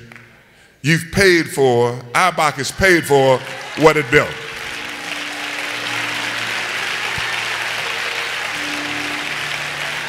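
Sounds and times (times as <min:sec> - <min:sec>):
congregation applauding: 0:02.6 - 0:10.0.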